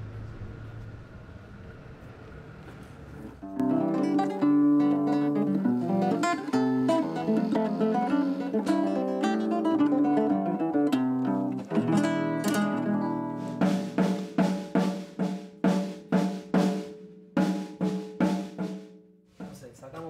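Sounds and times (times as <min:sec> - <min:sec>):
acoustic guitar plucked notes: 0:03.4 - 0:16.8
drum kit even beat: 0:11.8 - 0:19.6.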